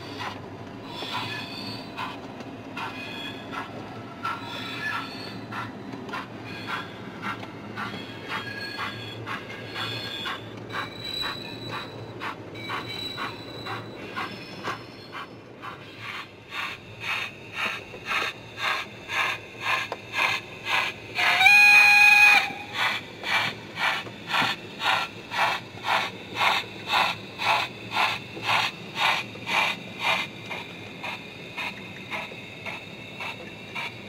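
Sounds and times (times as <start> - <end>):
model steam locomotive chuffing: 0.0 - 34.0
locomotive whistle: 21.1 - 22.9.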